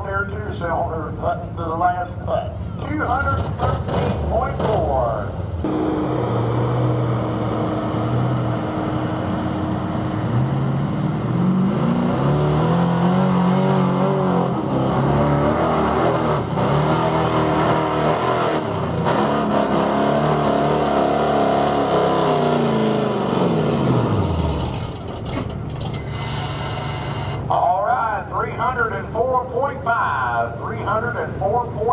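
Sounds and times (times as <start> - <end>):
pickup engine revving hard: 5.7 - 25.0.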